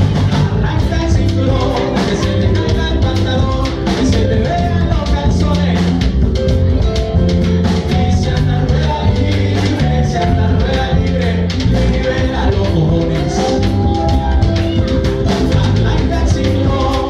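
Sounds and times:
drum hits: 0.0 - 17.0
live latin rock band: 0.0 - 17.0.

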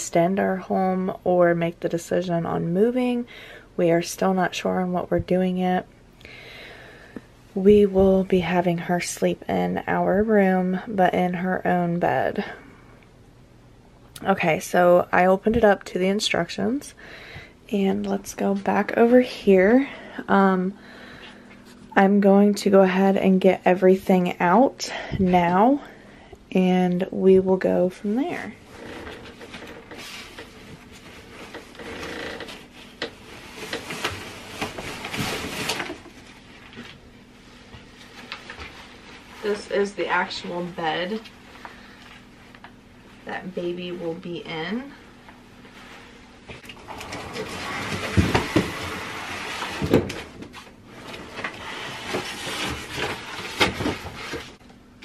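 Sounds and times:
packaging rustling and scraping: 28.8 - 37.0, 46.6 - 54.6
packaging rustling: 50.6 - 54.6.

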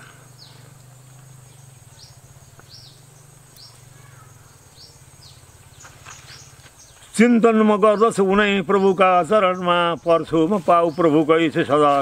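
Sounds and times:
high-pitched insect drone: 0.0 - 6.9
bird chirping: 0.0 - 12.0.

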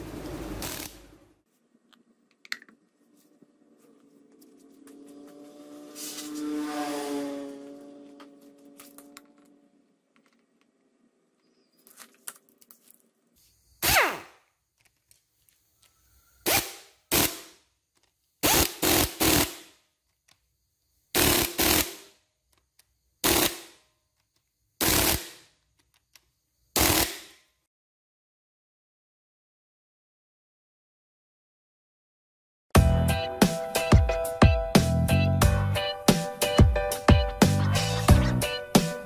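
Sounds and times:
impact driver bursts: 24.8 - 25.4, 26.8 - 27.4.

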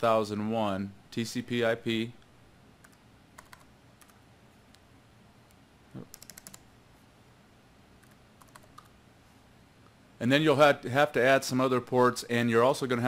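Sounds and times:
keyboard keystrokes: 2.8 - 4.2, 6.0 - 6.6, 8.0 - 8.9.

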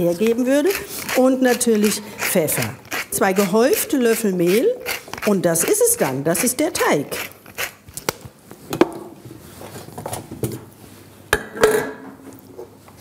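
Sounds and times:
pepper mill grinding: 0.1 - 8.1.

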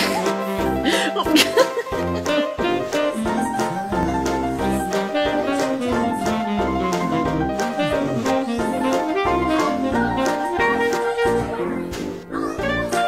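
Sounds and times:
instrumental music with steady beat: 0.0 - 13.0.

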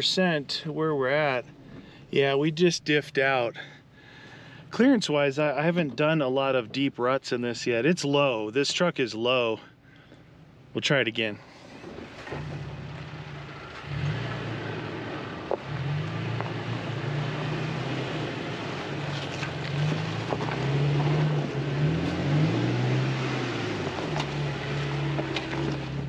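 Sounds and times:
truck engine revving: 11.8 - 26.0.

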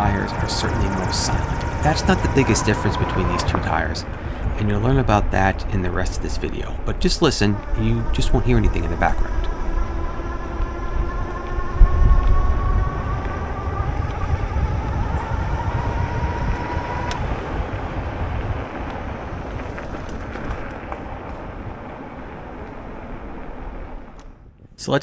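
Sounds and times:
tyres hissing on road: 0.0 - 9.0
electric motor whine: 0.0 - 24.4
wind rumble on microphone: 0.0 - 24.8.

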